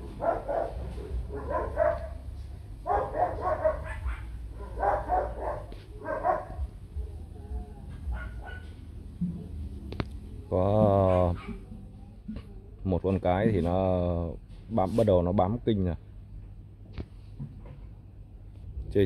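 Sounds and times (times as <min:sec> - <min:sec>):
dogs barking: 0:00.0 - 0:08.9, 0:10.8 - 0:11.8
steady low rumble: 0:00.0 - 0:10.5, 0:17.9 - 0:19.0.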